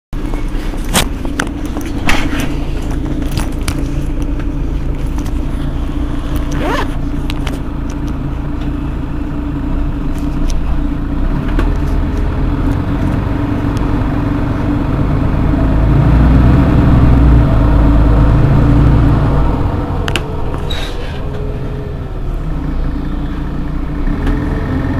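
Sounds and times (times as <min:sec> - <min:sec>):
bus engine idling: 0:00.2 - 0:24.9
brief rising squeal: 0:20.6 - 0:21.4.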